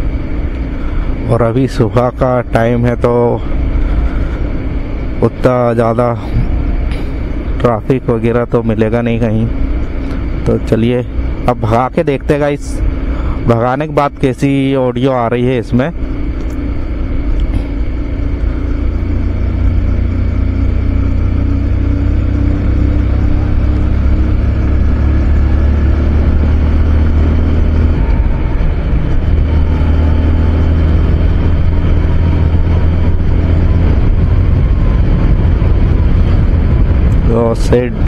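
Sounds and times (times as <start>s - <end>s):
motorcycle engine accelerating: 0.0s - 38.0s
wind noise: 22.0s - 38.0s.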